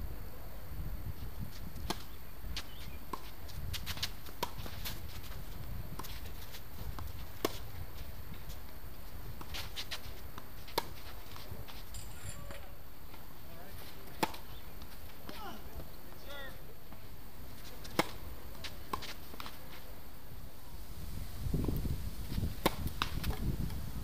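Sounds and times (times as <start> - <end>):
wind rumble on microphone: 0.0 - 4.0, 4.6 - 9.5, 20.7 - 24.0
racquets striking tennis ball: 1.8 - 7.8, 9.4 - 13.2, 13.8 - 19.7.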